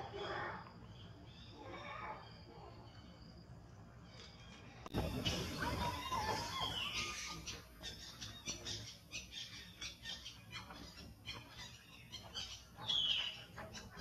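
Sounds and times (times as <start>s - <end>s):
macaque squealing: 5.1s - 10.7s.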